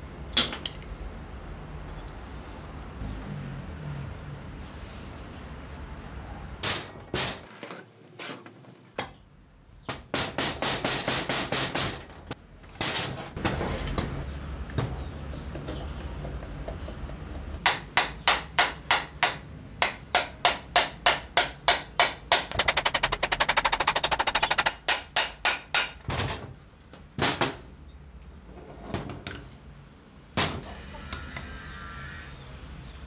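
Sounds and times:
rapid tapping rattle: 21.7s - 25.9s.

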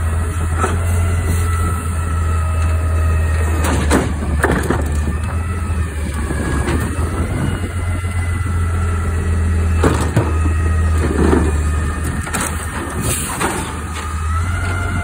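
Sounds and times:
garbage truck running: 0.0s - 15.0s
hydraulics whining: 0.0s - 15.0s.

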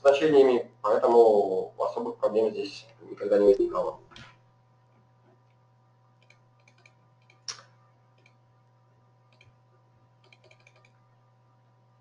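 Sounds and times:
low electrical hum: 0.0s - 12.0s
keyboard typing: 6.2s - 8.4s, 9.3s - 9.6s, 10.2s - 11.0s.

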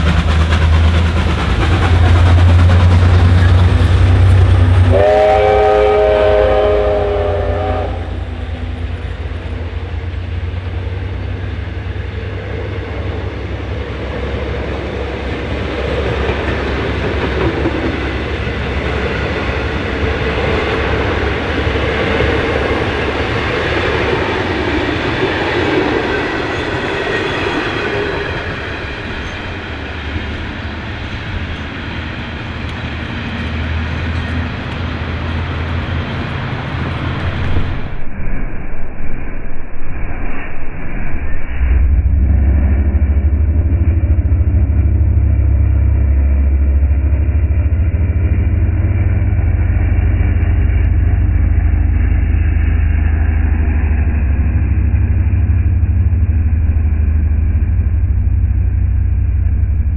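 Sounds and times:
train wheels clattering on rails: 0.0s - 5.7s, 8.5s - 37.9s
diesel locomotives rumbling: 0.0s - 38.4s, 40.8s - 59.9s
locomotive horn chord: 3.9s - 9.0s.

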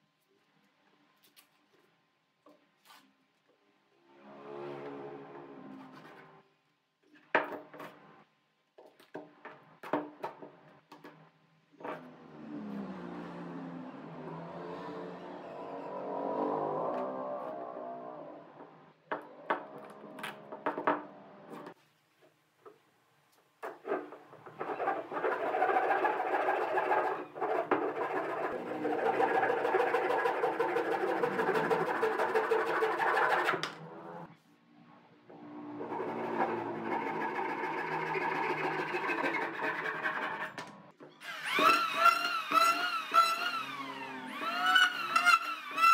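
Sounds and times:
hand saw cutting wood: 24.6s - 33.6s, 35.8s - 40.6s, 41.3s - 45.9s.

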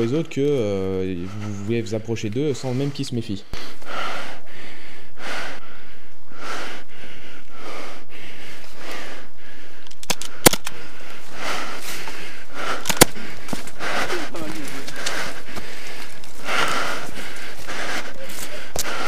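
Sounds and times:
sharp clicks: 9.8s - 10.8s
footsteps crunching dry leaves: 13.4s - 19.0s.

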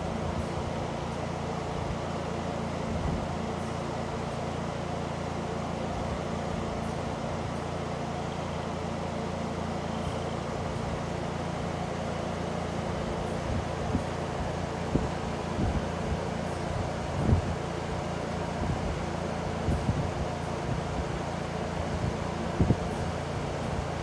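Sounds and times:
electric fan air rush: 0.0s - 24.0s
low motor hum: 0.0s - 24.0s.

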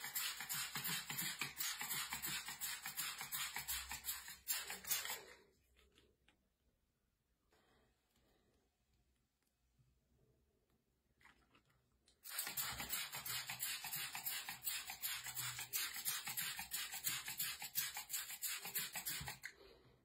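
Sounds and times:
spray bottle hissing mist: 0.0s - 5.3s, 12.2s - 19.5s.

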